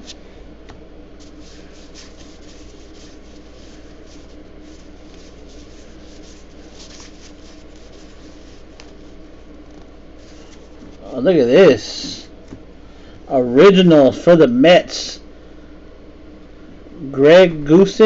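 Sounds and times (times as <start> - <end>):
steady low hum: 0.0 - 18.0
cards rustling: 1.2 - 11.2.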